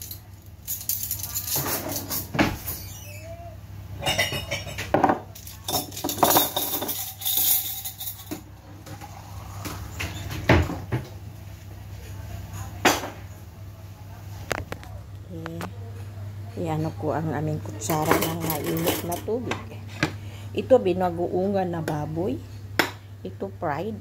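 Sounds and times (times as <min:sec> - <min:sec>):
steady low hum: 0:03.2 - 0:24.0
plates and cutlery clinking: 0:04.0 - 0:09.1, 0:17.8 - 0:19.3.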